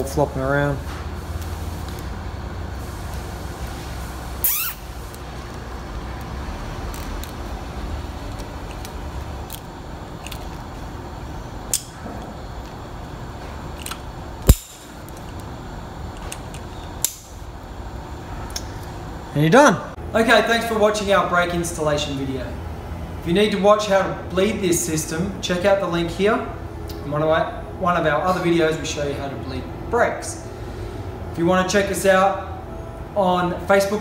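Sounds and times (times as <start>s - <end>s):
steady low hum: 0.0s - 34.0s
zip tie pulled tight: 4.4s - 4.9s
cutters snipping zip tie: 4.4s - 5.6s.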